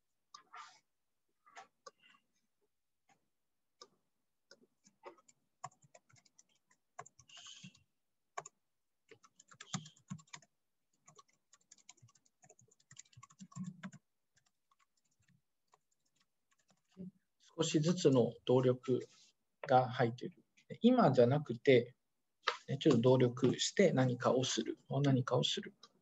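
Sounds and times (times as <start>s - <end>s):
typing on keyboard: 4.5s - 7.8s, 8.4s - 16.9s.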